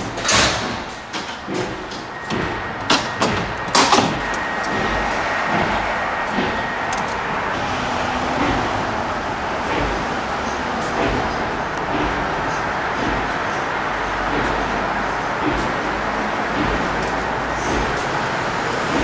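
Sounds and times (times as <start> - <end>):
road traffic passing: 0.0 - 19.0.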